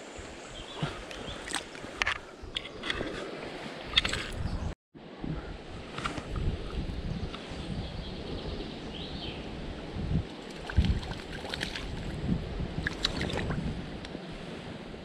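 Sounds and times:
river water sloshing and lapping: 0.0 - 4.5, 10.2 - 14.8.

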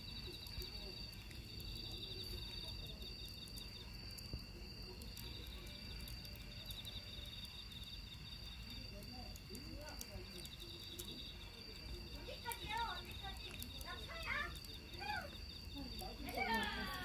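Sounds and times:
crickets trilling: 0.0 - 17.0
faint distant voices: 0.0 - 17.0.

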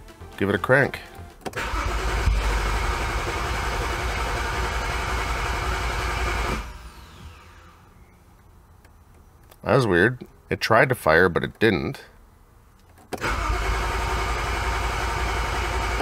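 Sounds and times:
engine cranking on starter: 1.4 - 7.9, 13.1 - 16.0.

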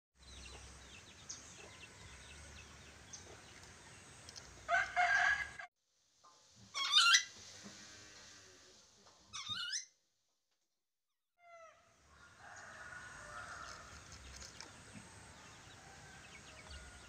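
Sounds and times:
faint birdsong: 0.2 - 5.2, 11.4 - 17.0
lorikeet screeching call: 6.8 - 7.3, 9.3 - 9.9.

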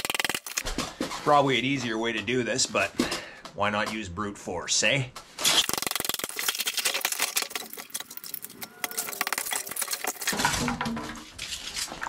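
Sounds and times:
scraping and crunching: 5.2 - 12.0.

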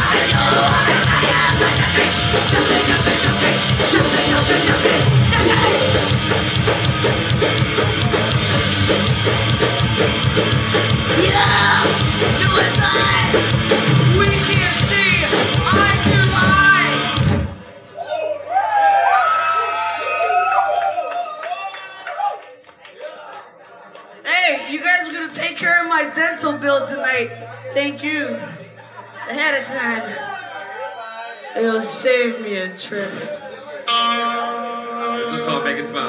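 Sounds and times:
yelled vocals: 0.0 - 17.3
punk band playing live: 0.0 - 17.7.

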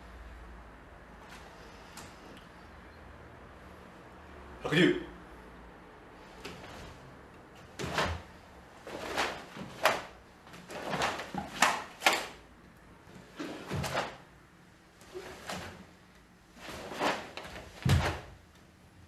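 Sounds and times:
cloth snapping and swishing: 7.6 - 12.4, 16.6 - 18.4
bare feet thumping on wooden floor: 17.7 - 18.4.

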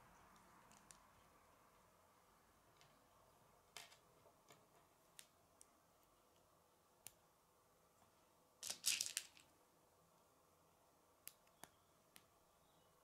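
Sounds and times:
plastic pieces snapping together: 8.6 - 9.5.

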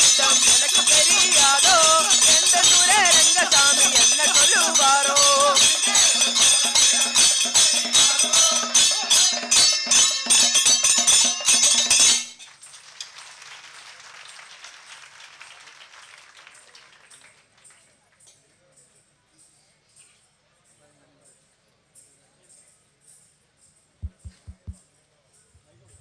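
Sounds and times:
voices singing: 0.0 - 9.6
fast percussion strokes: 0.0 - 12.4, 24.0 - 26.0
ringing metal cymbals: 0.0 - 12.5
faint background murmur: 15.5 - 26.0.

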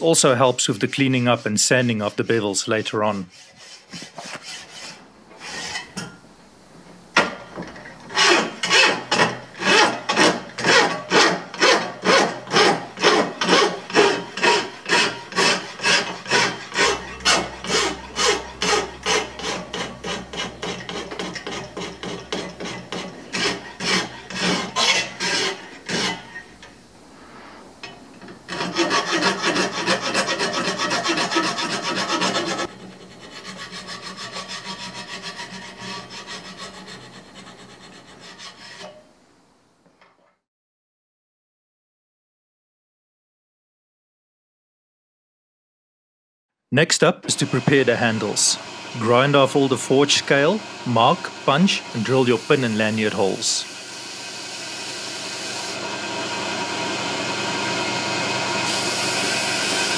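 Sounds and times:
file rasping on steel blade: 0.9 - 6.1, 8.1 - 26.5, 28.5 - 39.1.

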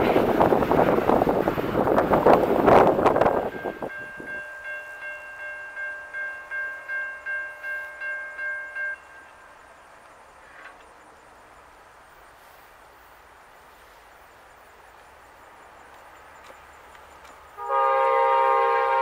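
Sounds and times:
outdoor background noise: 0.0 - 19.0
locomotive horn blowing: 17.6 - 19.0.

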